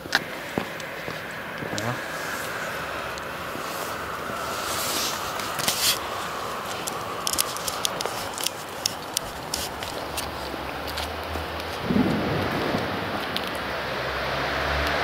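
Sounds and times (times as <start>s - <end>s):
sharp clicks and crackles: 4.6s - 13.7s.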